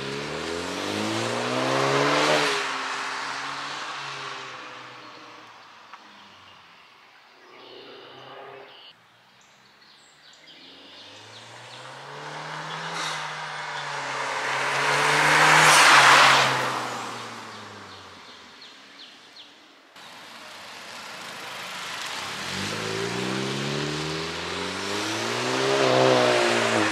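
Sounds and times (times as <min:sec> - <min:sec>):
car exhaust passing: 0:10.9 - 0:18.4, 0:20.6 - 0:26.9.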